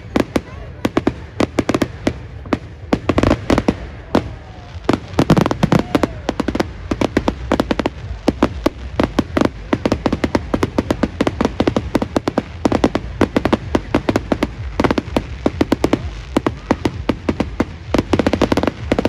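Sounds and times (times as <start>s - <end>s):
fireworks bursting and crackling: 0.0s - 19.0s.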